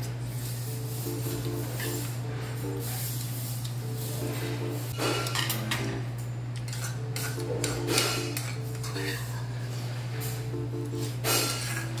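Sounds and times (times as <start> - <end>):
steady low hum: 0.0 - 12.0
utensils clinking against bowls: 4.2 - 12.0.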